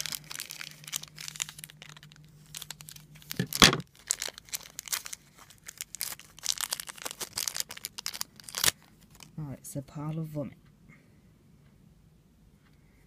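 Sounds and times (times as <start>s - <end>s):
plastic wrapper crinkling and tearing: 0.0s - 9.4s.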